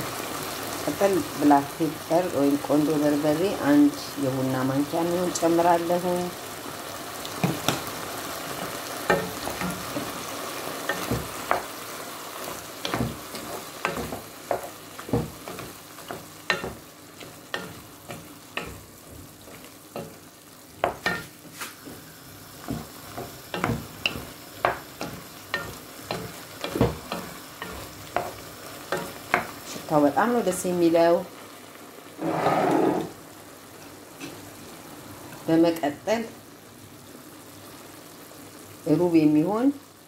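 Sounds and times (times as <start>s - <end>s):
food sizzling in a pot: 0.0s - 40.0s
wooden spoon knocking a pot: 10.9s - 11.7s, 12.8s - 19.3s, 20.8s - 21.3s, 22.6s - 29.6s.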